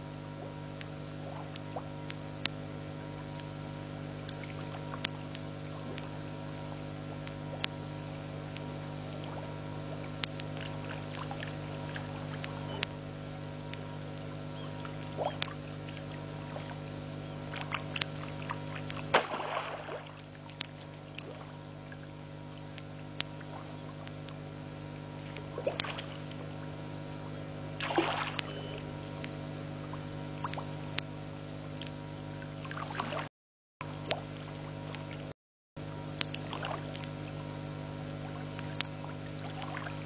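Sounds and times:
steady electrical hum: 0.0s - 40.0s
loud crackling noises: 0.4s - 26.9s.

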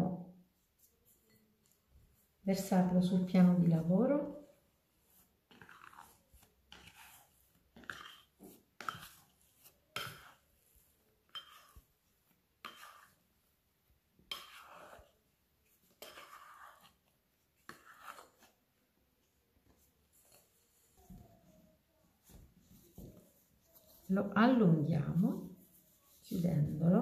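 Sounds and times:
scraper scraping glass bowl: 5.5s - 12.0s, 12.6s - 13.2s, 14.3s - 15.2s, 15.8s - 18.5s.

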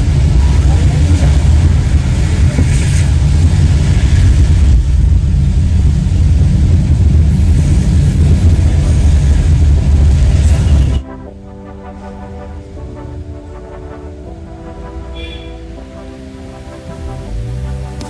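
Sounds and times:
car tyres on wet road: 0.0s - 11.0s, 16.0s - 18.0s.

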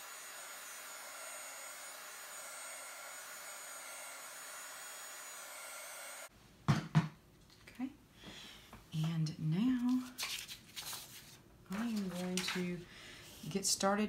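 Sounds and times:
heat gun blowing: 0.0s - 6.3s.

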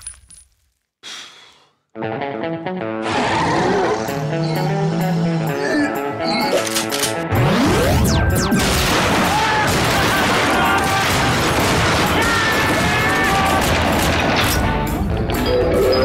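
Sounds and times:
film music score: 2.0s - 16.0s
sustained gunfire: 7.4s - 14.8s.

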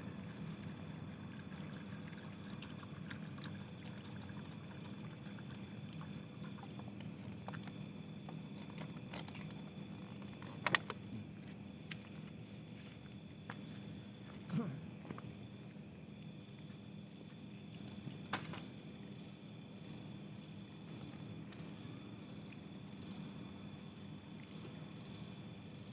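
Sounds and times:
water trickling into plastic bowl: 0.7s - 8.0s.

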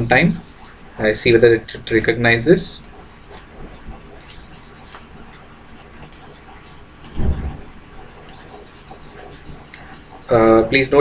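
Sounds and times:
computer mouse clicking: 2.8s - 5.4s, 6.0s - 6.4s, 7.0s - 9.9s.

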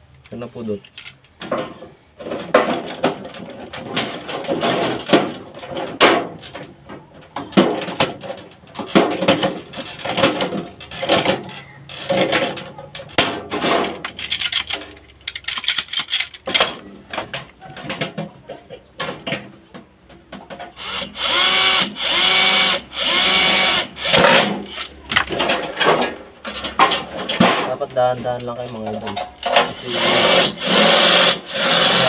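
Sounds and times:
metallic clinks and knocks: 13.8s - 18.2s.

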